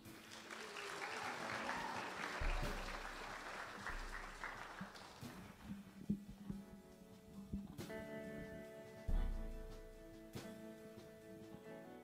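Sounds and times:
crowd applauding: 0.0 - 5.9.

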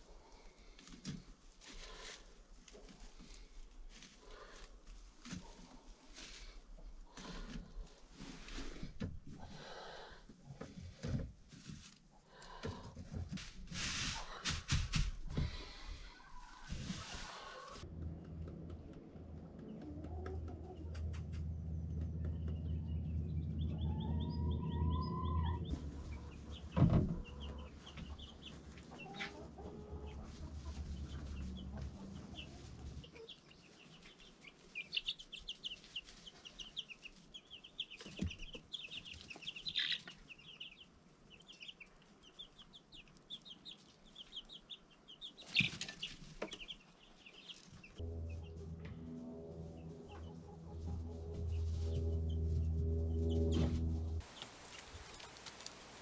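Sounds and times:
chicks peeping: 18.7 - 48.6, 49.7 - 56.0
low steady hum: 48.0 - 56.0.

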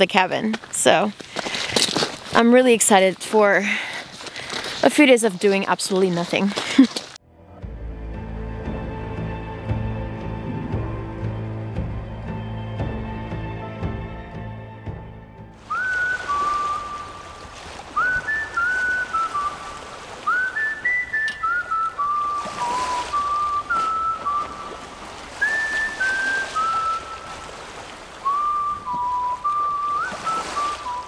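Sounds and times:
person whistling a melody: 15.7 - 17.3, 17.9 - 27.5, 28.2 - 31.0.

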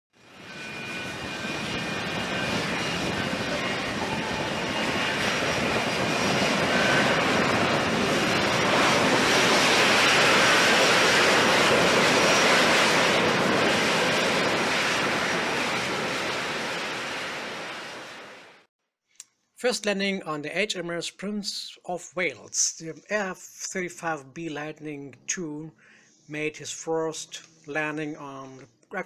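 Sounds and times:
jet engine roar: 0.2 - 18.7.

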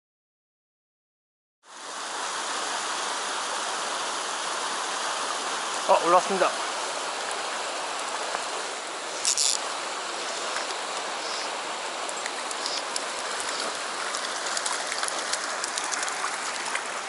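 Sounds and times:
stream running over stones: 1.6 - 17.0
faint ticks: 10.6 - 16.1.

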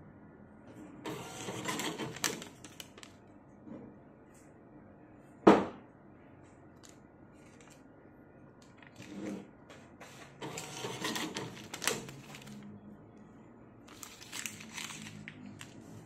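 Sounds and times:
ticket printer buzzing: 1.1 - 2.6, 10.4 - 12.6
paper ticket ripping: 1.1 - 3.1, 10.4 - 12.7, 13.9 - 15.9.

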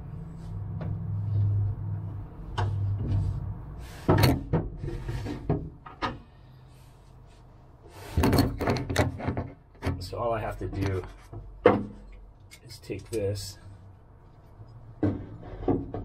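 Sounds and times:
knocks and clatters of handling: 4.0 - 6.3, 8.1 - 13.4, 14.4 - 16.0.

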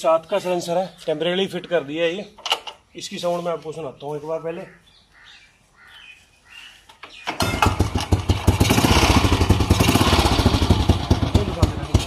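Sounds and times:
motorcycle engine starting and running: 7.2 - 12.0.

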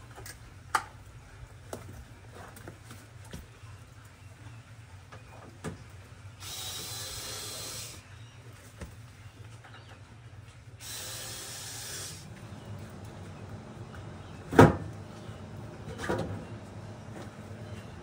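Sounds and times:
cordless drill running: 6.4 - 8.0, 10.8 - 12.3.

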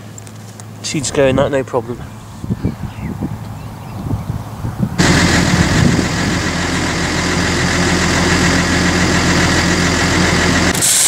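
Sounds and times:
tractor engine idling: 5.0 - 11.0.

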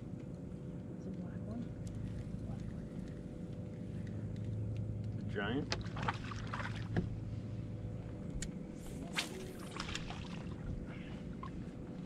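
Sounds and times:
steady low hum: 0.0 - 12.0
fish splashing out of water: 9.1 - 10.6.

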